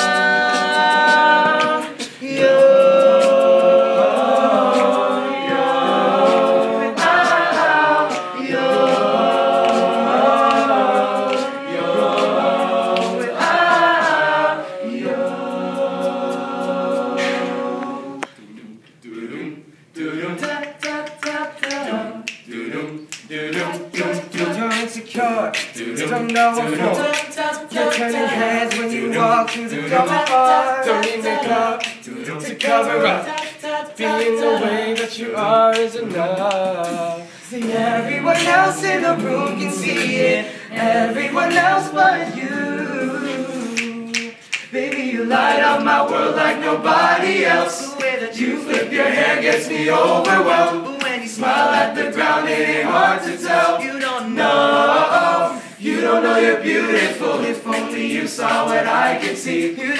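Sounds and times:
male a cappella group singing: 0.0s - 59.9s
finger snaps: 20.6s - 24.9s, 43.7s - 45.0s.

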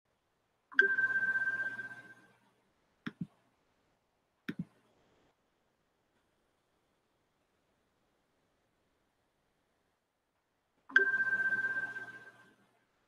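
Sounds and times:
ringing chime: 0.8s - 2.3s, 10.9s - 12.5s.

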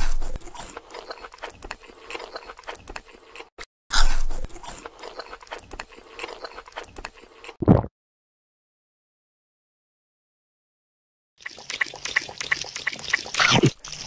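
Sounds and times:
person crunching food: 0.0s - 7.6s.

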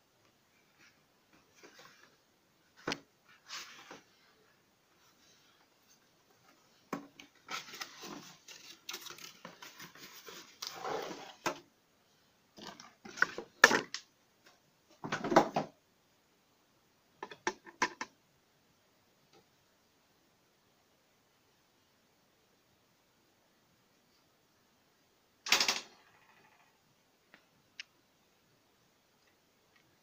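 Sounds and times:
cardboard rustling and scraping: 6.4s - 11.6s.

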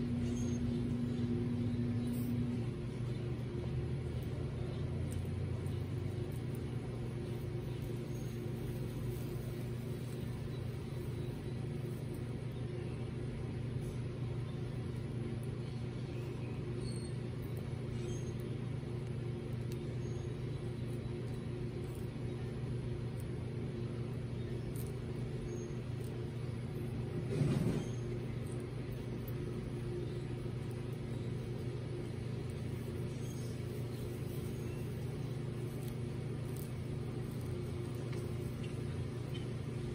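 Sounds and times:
low mechanical hum: 0.0s - 39.9s.

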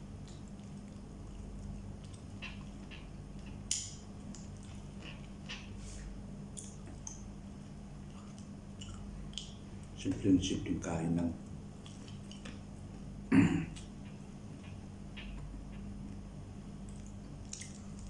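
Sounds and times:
chewing: 0.1s - 10.0s, 11.4s - 13.1s, 16.8s - 18.0s.

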